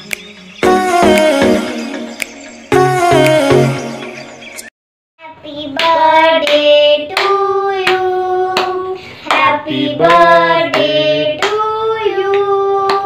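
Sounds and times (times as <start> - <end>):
person singing long held notes: 0.6 - 2.0
hands clapping in time: 1.0 - 1.6.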